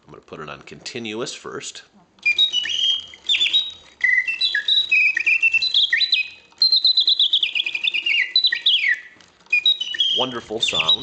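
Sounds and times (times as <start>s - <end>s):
mechanical bird whistle chirps and trills: 2.2s - 11.0s.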